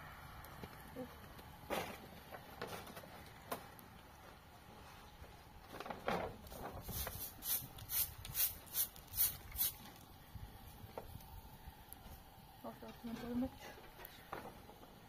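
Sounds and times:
straw broom sweeping: 0:06.6 - 0:09.9.

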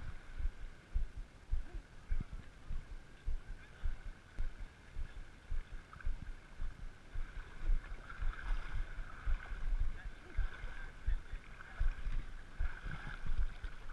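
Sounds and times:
river water sloshing and lapping: 0:03.6 - 0:13.9.

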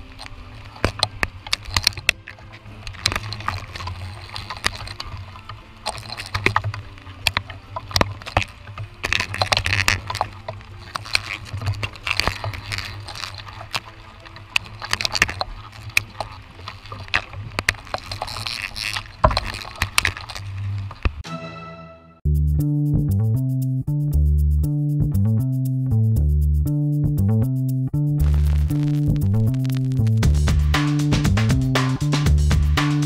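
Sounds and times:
clicks and knocks on branches: 0:00.0 - 0:21.2
leaves rustling: 0:00.0 - 0:21.2
steady low rumble: 0:22.3 - 0:32.8
rain: 0:28.2 - 0:30.5.

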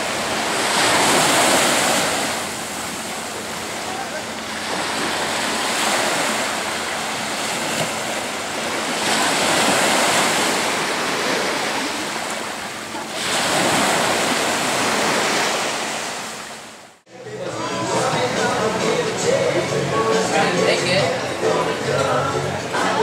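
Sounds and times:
small waves breaking on beach: 0:00.0 - 0:17.0.

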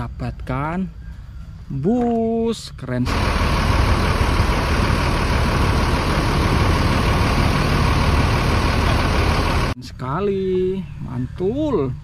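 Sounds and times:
diesel engine idling: 0:03.0 - 0:09.8.

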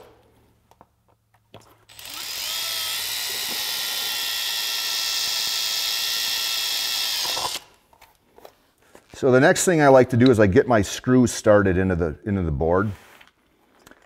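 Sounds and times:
cordless drill drilling into metal: 0:01.9 - 0:07.8.

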